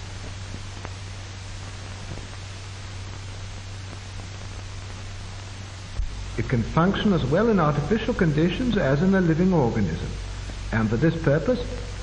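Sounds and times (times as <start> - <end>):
film soundtrack hiss and hum: 0.0 - 12.0.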